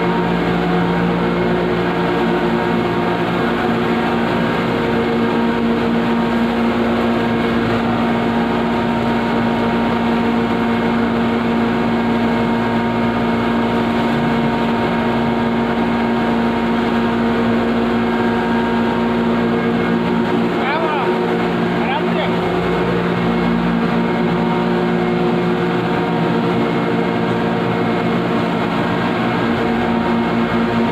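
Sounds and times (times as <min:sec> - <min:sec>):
grinding machinery motor hum: 0:00.0 - 0:30.9.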